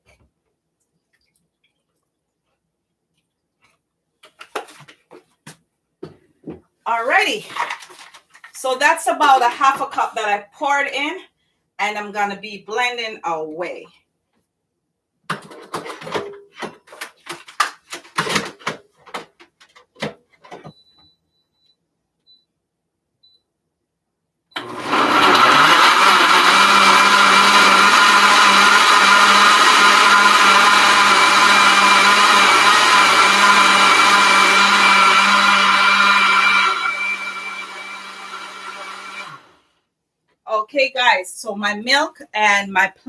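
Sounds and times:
blender running at high speed: 24.6 - 39.6.

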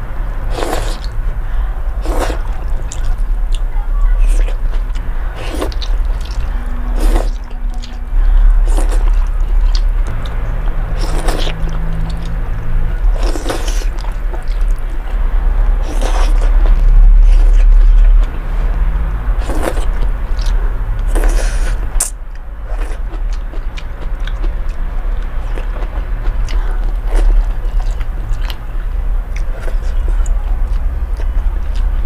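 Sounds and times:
steady low hum: 0.0 - 32.0
slurping noodles: 0.5 - 1.1, 2.0 - 3.2, 5.4 - 7.4, 8.3 - 9.8, 11.0 - 12.2, 13.1 - 14.7, 15.8 - 16.5
wet chewing with smacks: 4.2 - 8.0, 8.6 - 12.4.

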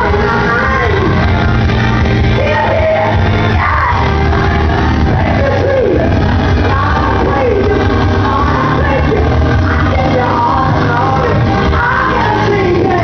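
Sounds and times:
instrumental backing with low bass: 0.0 - 13.0
person singing gospel: 0.0 - 13.0.

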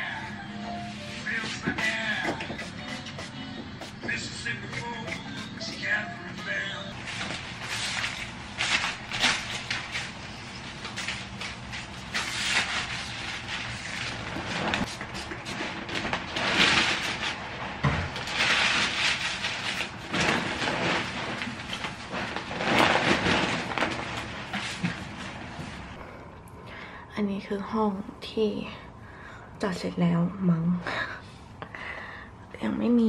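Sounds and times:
plastic crinkling and rustling: 4.0 - 26.0.

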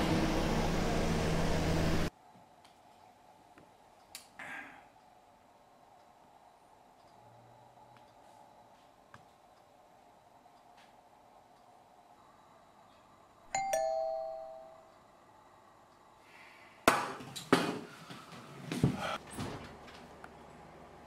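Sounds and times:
doorbell ding-dong chime: 13.5 - 14.9.

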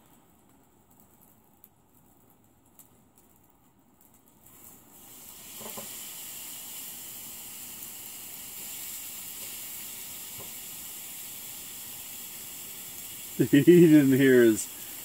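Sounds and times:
steak sizzling in a frying pan: 4.4 - 15.0.

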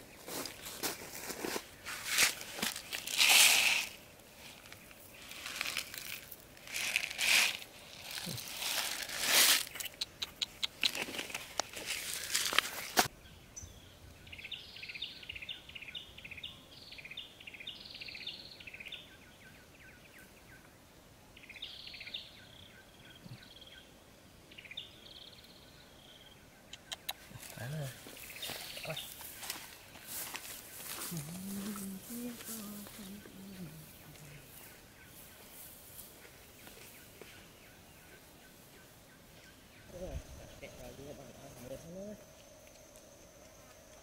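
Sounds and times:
grain pattering on dry ground: 0.0 - 13.1, 27.3 - 33.2
small bird chirping: 8.0 - 20.3, 24.5 - 44.0.

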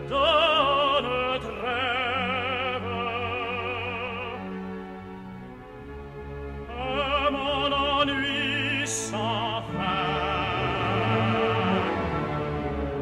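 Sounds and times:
operatic tenor singing: 0.0 - 5.4, 6.2 - 13.0
full orchestra: 0.0 - 13.0.

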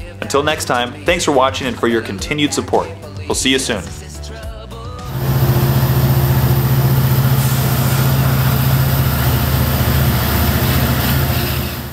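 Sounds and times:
heavy engine idling: 5.1 - 11.9.

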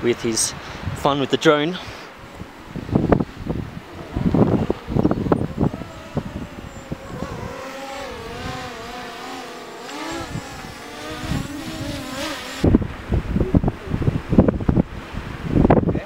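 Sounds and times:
wind on microphone: 0.0 - 1.2, 1.8 - 16.0
drone propeller whine: 2.4 - 12.7.

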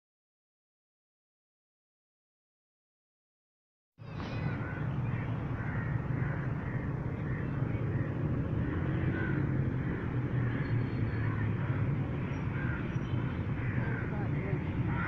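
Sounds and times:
birds calling: 4.0 - 15.0.

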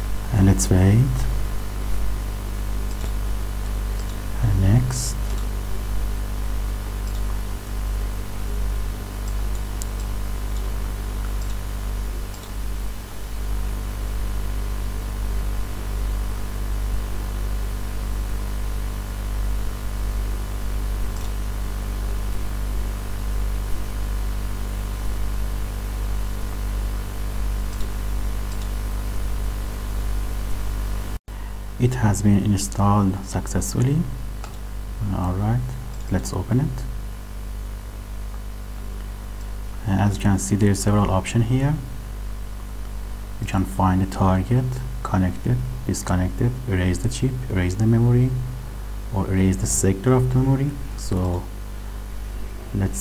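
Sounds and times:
background hiss: 0.0 - 53.0
electrical hum: 0.0 - 53.0
faint clicks: 2.8 - 4.2, 5.2 - 5.5, 7.0 - 7.4, 9.2 - 11.6, 12.3 - 12.6, 21.1 - 21.4, 27.7 - 28.8, 33.8 - 34.6.

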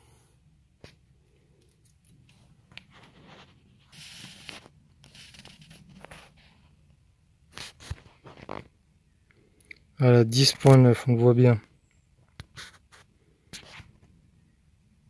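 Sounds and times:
brief rustle: 1.7 - 6.6.

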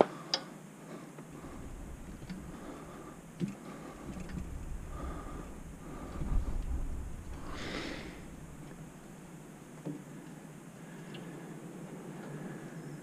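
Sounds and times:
low rumble: 1.3 - 9.6.

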